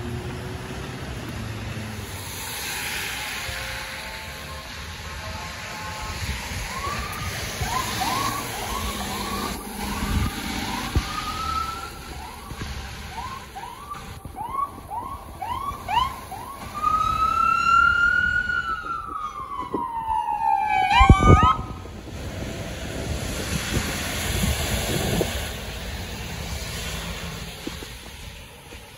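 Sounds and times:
traffic on wet road: 0.0s - 28.9s
rain hiss: 0.6s - 14.2s, 22.0s - 28.9s
ambulance siren yelping and wailing: 5.2s - 22.0s.

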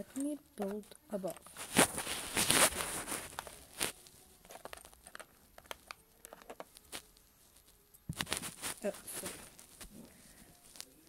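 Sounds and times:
rustling handling noise: 0.0s - 11.0s
toy bricks clicking together: 4.4s - 7.0s.

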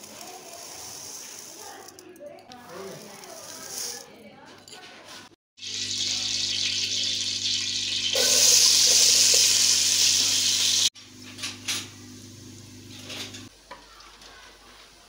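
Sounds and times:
onions sizzling in oil: 5.6s - 11.0s, 11.8s - 13.7s.

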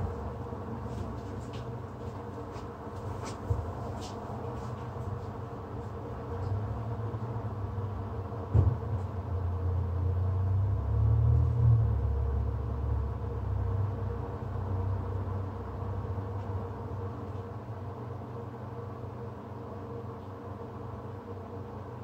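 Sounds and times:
faint steady hum: 0.0s - 22.0s.

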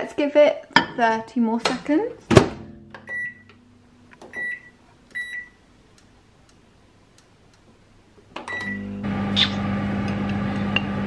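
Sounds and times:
microwave keypad beeps: 3.1s - 3.5s, 4.3s - 5.6s, 8.5s - 8.9s
microwave oven humming: 8.4s - 11.0s.

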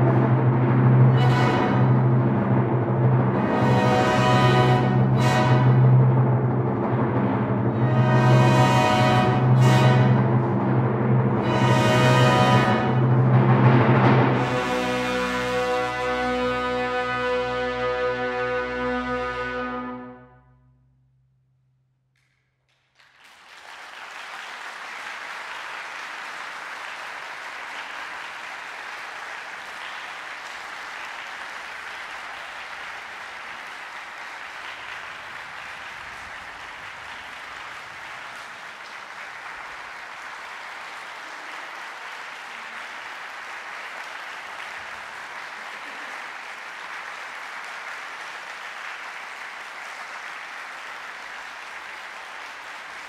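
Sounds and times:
audience applauding: 22.2s - 53.0s.

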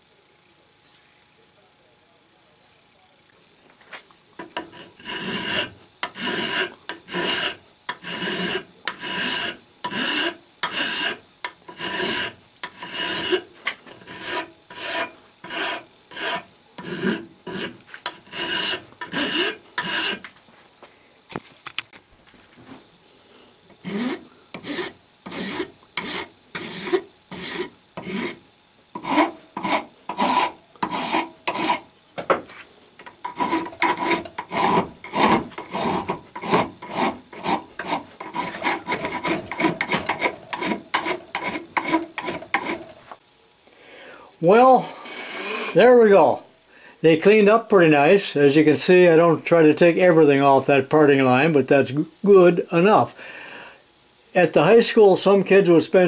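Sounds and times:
hand file scraping metal: 4.4s - 20.3s, 23.8s - 28.4s, 29.0s - 31.9s, 32.5s - 43.0s, 44.4s - 46.4s.

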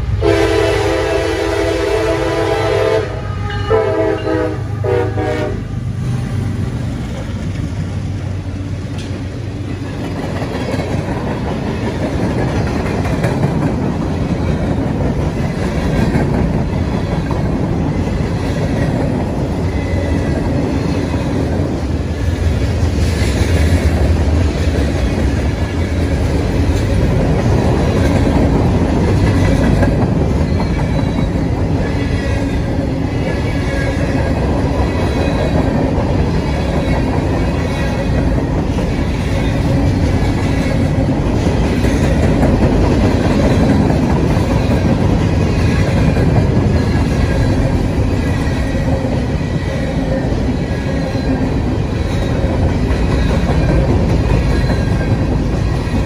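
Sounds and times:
train wheels rumbling over rails: 0.0s - 56.0s
locomotive air horn blasts: 0.2s - 5.7s.

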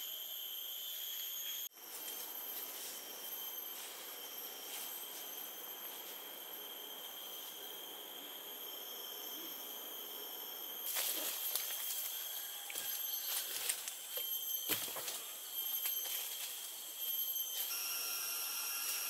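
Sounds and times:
insects droning: 0.0s - 19.0s
leaves and twigs rustling: 1.8s - 6.4s, 10.8s - 17.7s.

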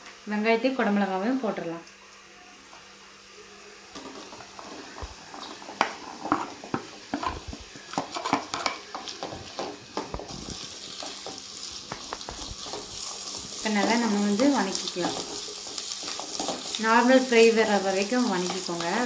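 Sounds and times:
oil sizzling: 2.1s - 19.0s
vegetables clattering into pan: 4.0s - 19.0s.

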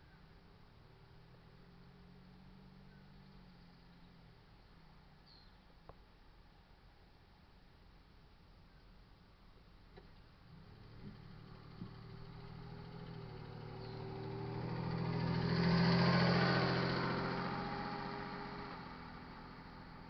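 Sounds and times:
car driving past: 10.5s - 20.0s.

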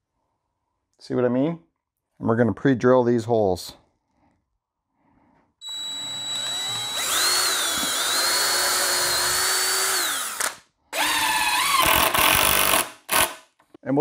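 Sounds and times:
cordless drill motor whine: 5.6s - 12.0s.

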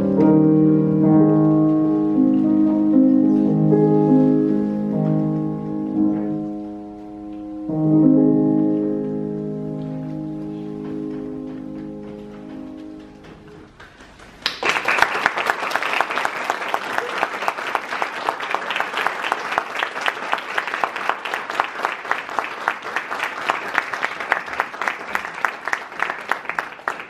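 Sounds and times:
audience applauding: 11.1s - 27.0s.

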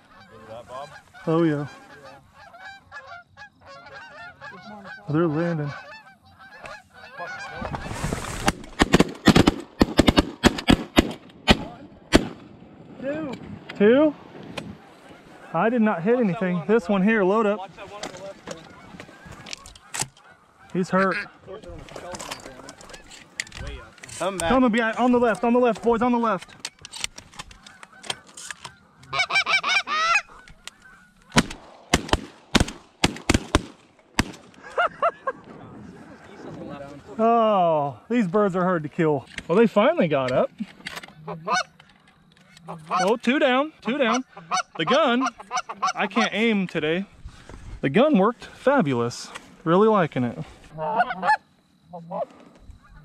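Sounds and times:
geese honking: 0.0s - 8.5s, 14.7s - 32.0s, 39.5s - 47.5s, 50.4s - 53.0s
shotgun shots: 8.4s - 12.6s, 31.3s - 34.5s
shotgun fire volley: 31.4s - 34.5s.

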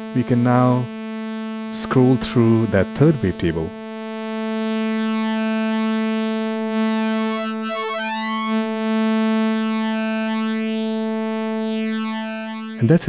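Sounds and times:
synthesizer holding a steady note: 4.6s - 12.8s.

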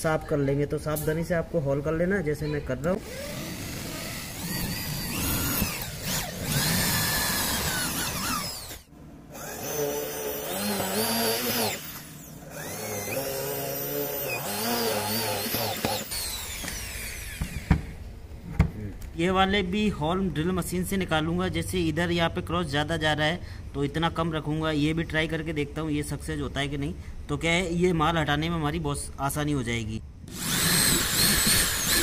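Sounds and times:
electric drill boring wood: 3.0s - 17.9s, 30.3s - 32.0s.

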